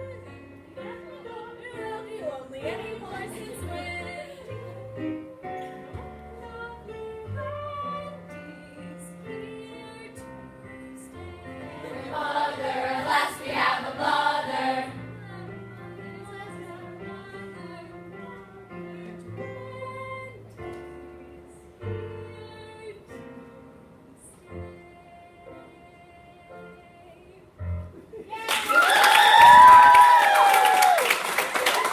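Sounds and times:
voices singing: 11.2 - 15.5.

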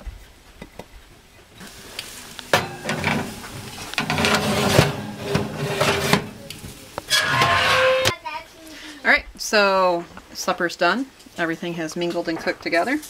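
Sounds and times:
cheese sizzling: 1.6 - 8.1
casserole dish clattering: 2.3 - 8.1
oven door clack: 2.4 - 8.1.

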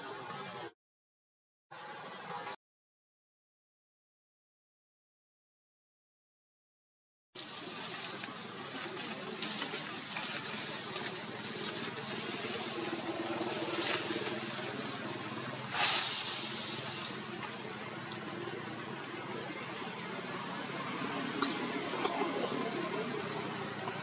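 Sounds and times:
hissing outdoor background noise: 1.8 - 2.6, 7.4 - 24.0.

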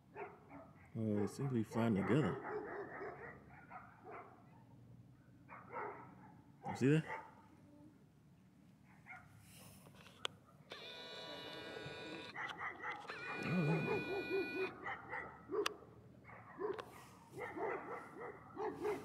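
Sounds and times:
animal whining: 10.7 - 14.9.

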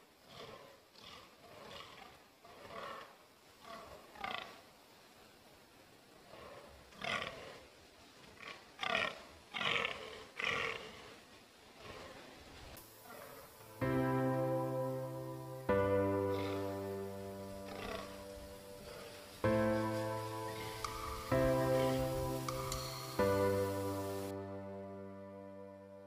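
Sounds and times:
deer groaning: 0.2 - 4.5, 6.2 - 7.7, 8.4 - 11.2, 11.8 - 12.4, 13.0 - 13.5, 16.3 - 23.1.

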